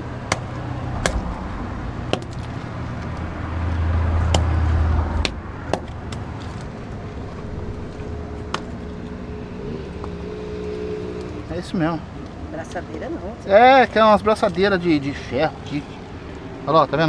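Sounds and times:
traffic rumble: 0.0 - 17.0
stone and dirt clicking onto concrete: 2.1 - 3.3.

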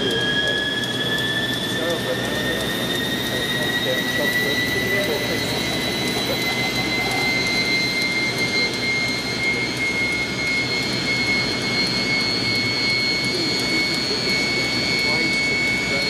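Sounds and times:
helicopter turbine whine: 0.0 - 16.0.

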